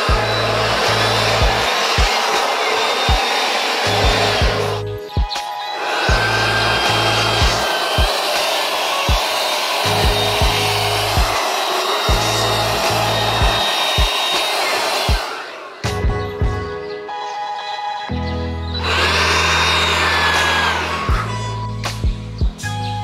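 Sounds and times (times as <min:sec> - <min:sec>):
cordless blower rushing air: 0:00.0 - 0:05.0, 0:05.8 - 0:16.1, 0:18.8 - 0:21.8
background music with beat: 0:00.0 - 0:23.0.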